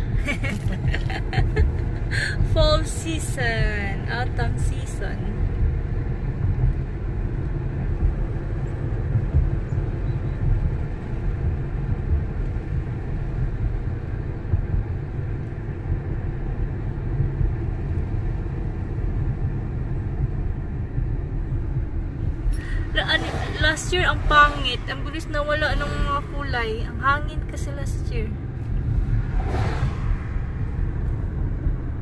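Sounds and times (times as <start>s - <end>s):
car road and engine rumble: 0.0s - 32.0s.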